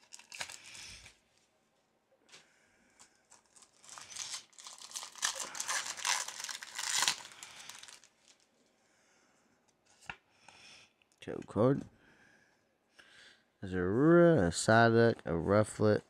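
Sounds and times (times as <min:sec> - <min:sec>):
foil wrapper crinkling and tearing: 0:00.0 - 0:01.2, 0:03.1 - 0:08.5.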